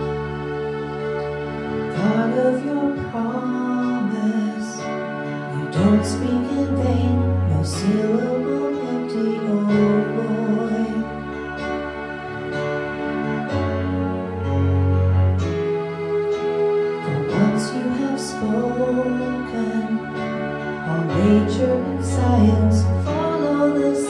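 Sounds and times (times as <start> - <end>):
digital piano chords: 0.0 - 24.0.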